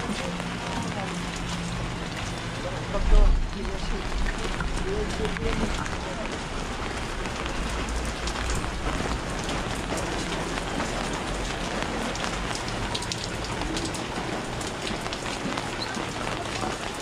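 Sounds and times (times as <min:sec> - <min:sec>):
steady rain patter: 0:00.0 - 0:17.0.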